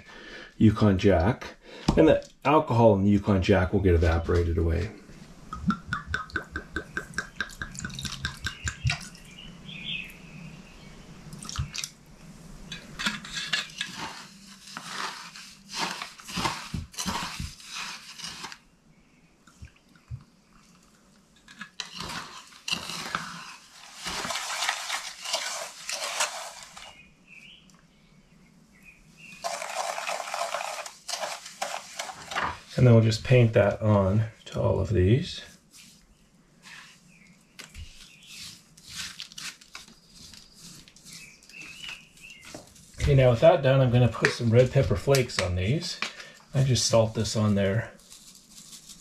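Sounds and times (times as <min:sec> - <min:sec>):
wooden spoon scraping metal tin: 0:12.7 - 0:18.6, 0:21.4 - 0:27.0, 0:29.4 - 0:32.8.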